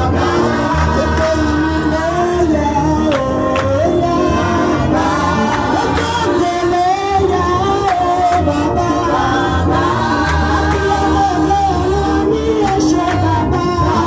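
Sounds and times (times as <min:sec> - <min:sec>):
congregation singing gospel: 0:00.0 - 0:14.0
hand claps: 0:03.1 - 0:03.8.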